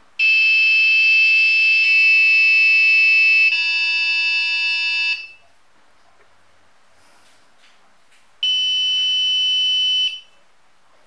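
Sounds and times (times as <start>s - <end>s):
piezo buzzer square-wave tone: 0.2s - 5.4s.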